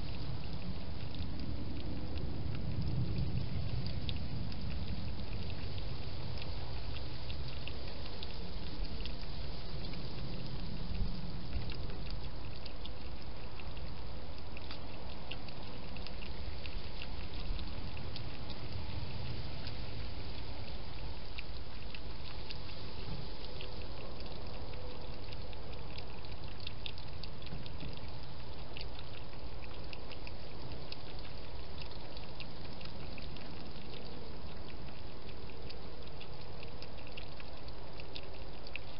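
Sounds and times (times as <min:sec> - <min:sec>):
steady hiss: 0:00.0 - 0:38.9
hedgehog clicking mouth sounds: 0:23.5 - 0:38.9.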